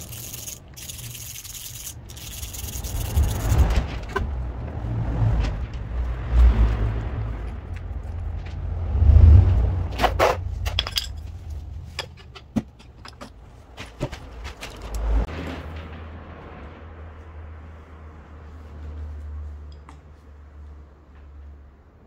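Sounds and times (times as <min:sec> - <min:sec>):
metal parts clicking and clinking: 0:00.0 - 0:04.2, 0:10.6 - 0:13.5.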